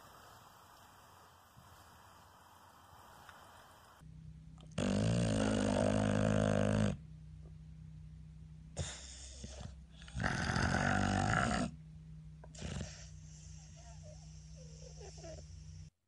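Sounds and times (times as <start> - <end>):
dog snoring: 4.6 - 7.1, 8.8 - 11.8, 12.4 - 15.6.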